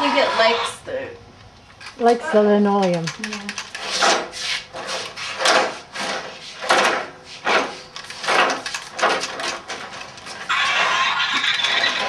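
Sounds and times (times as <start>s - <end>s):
toy car wheels scraping: 9.9s - 12.0s.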